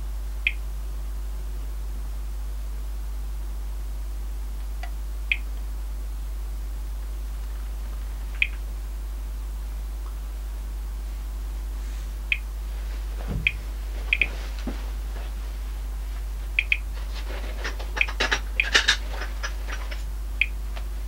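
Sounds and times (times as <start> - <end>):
radiation meter chirps: 0.3 - 0.8, 4.8 - 5.6, 8.2 - 8.7, 12.2 - 14.6, 15.8 - 17.0, 17.9 - 21.0.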